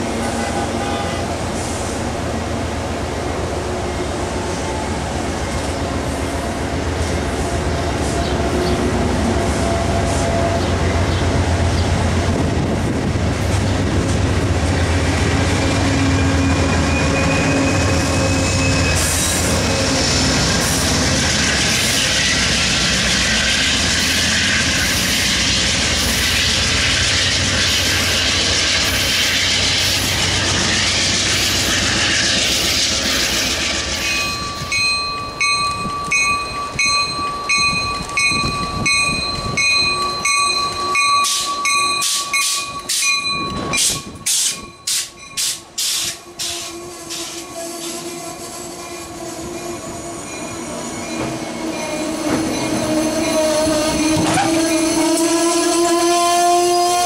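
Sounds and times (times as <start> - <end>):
train rumbling past: 0.0 - 57.0
wheel and rail hiss: 19.0 - 34.5, 43.8 - 48.2.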